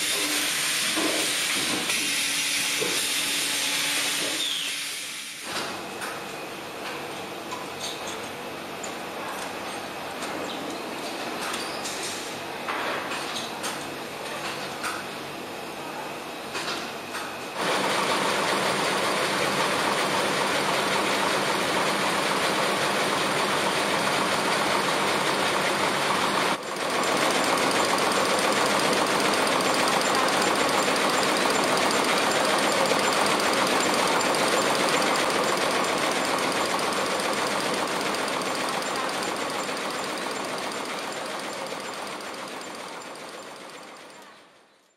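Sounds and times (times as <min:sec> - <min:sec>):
embroidery machine clattering: 0:17.6 - 0:44.3.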